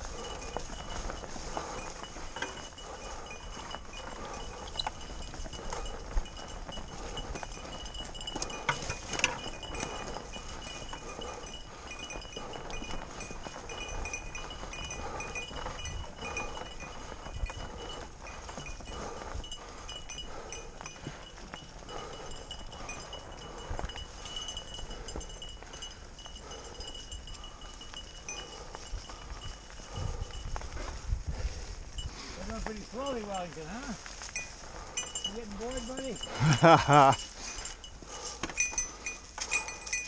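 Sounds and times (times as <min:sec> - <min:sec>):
bike clicks and rattles: 0:00.0 - 0:32.8
tyres crunching through dry leaves: 0:30.7 - 0:39.5.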